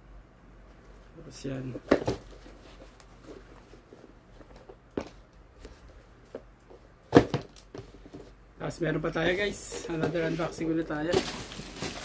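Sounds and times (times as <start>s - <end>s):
sneakers rustling and knocking: 1.6s - 8.4s, 9.3s - 12.0s.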